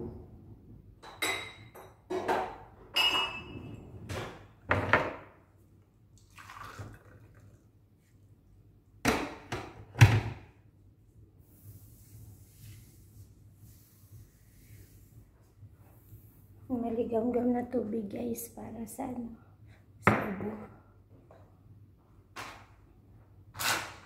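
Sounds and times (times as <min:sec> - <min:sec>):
dishes and glassware clinking: 0:01.0 - 0:03.8.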